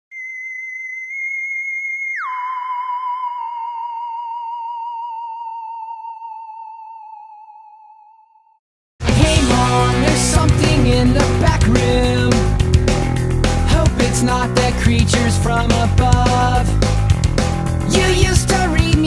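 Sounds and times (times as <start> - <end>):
theremin-like electronic tone: 0.1 - 8.6.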